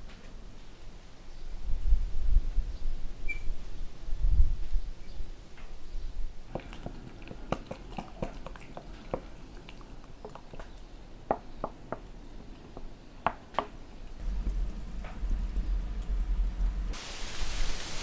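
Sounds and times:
utensil tapping glass bowl: 0:06.5 - 0:10.7, 0:11.3 - 0:13.8
batter squishing: 0:06.5 - 0:17.0.

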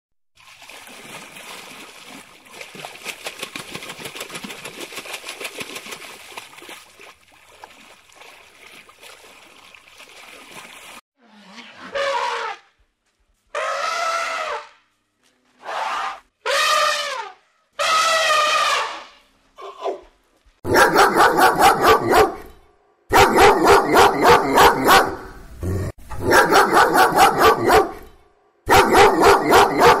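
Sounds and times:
dog barking rapidly: 0:20.7 - 0:25.4, 0:26.2 - 0:28.1, 0:28.7 - 0:30.0.

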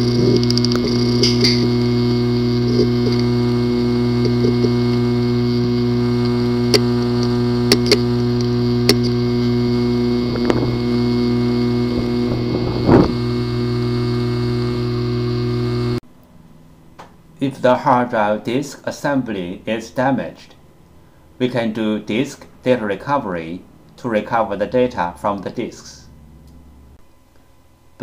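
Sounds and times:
hard drive clicks: 0:00.0 - 0:16.0
hard drive humming: 0:00.0 - 0:16.0.

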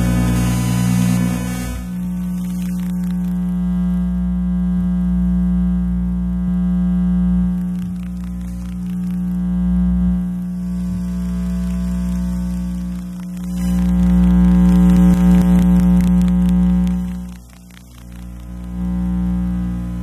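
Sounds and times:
crackling ticks: 0:00.0 - 0:04.0, 0:07.4 - 0:09.5, 0:10.3 - 0:19.0
electrical interference buzz: 0:00.0 - 0:20.0.

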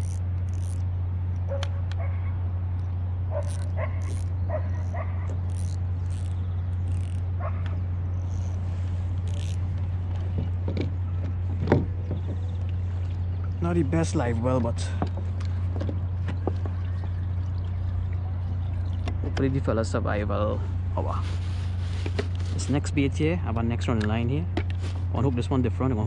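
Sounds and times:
low hum: 0:00.0 - 0:26.0
dogs barking and yipping: 0:01.4 - 0:02.4, 0:03.3 - 0:05.6, 0:07.3 - 0:07.9.

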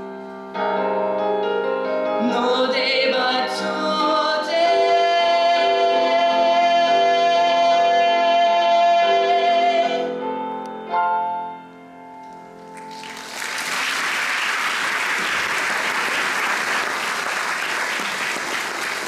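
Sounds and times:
audience applause: 0:12.8 - 0:19.0.

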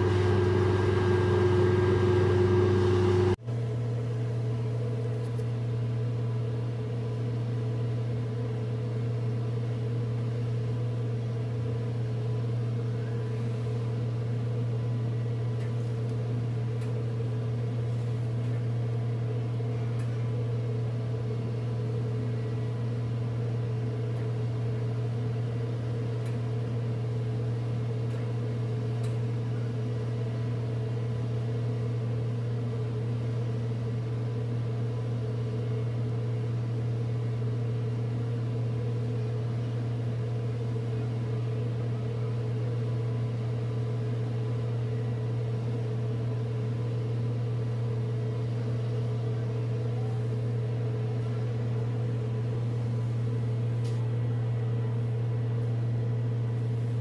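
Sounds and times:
higher machinery hum: 0:00.0 - 0:05.0
low machinery drone: 0:00.0 - 0:26.4.

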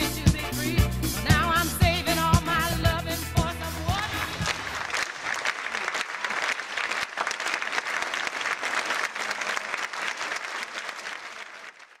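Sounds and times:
audience applauding: 0:04.0 - 0:12.0.

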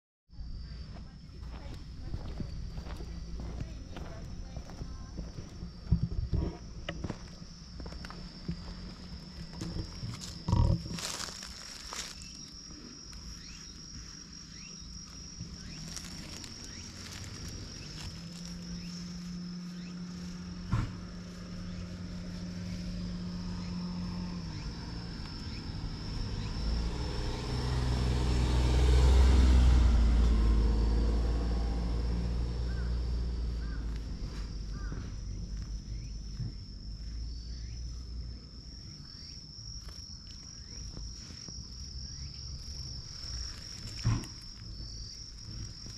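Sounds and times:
high-pitched insect trill: 0:00.3 - 0:45.9
vehicle engine passing: 0:14.4 - 0:38.2.

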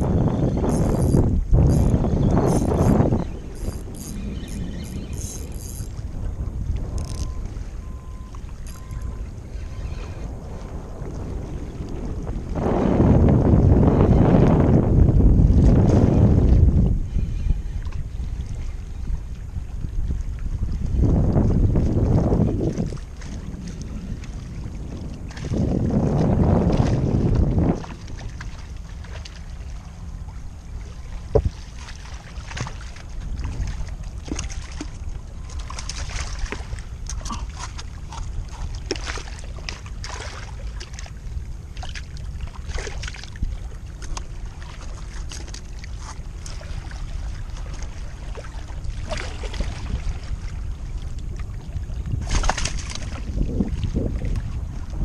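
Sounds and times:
wind on microphone: 0:00.0 - 0:55.0
water lapping on rocks: 0:30.8 - 0:55.0.

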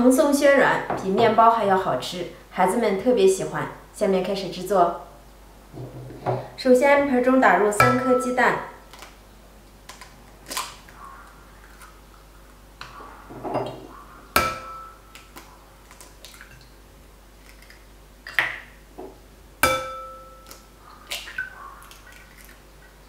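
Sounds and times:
bowl ringing: 0:14.4 - 0:15.1, 0:19.6 - 0:20.6.

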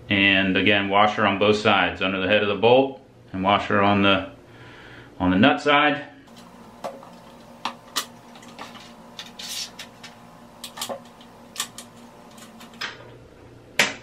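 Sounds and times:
faint steady hum: 0:06.1 - 0:13.8.

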